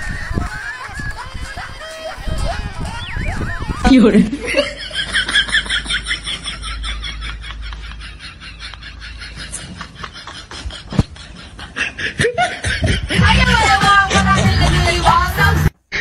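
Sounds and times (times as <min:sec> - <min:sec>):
woman laughing hard: 0:03.9 - 0:13.4
music: 0:13.2 - 0:15.7.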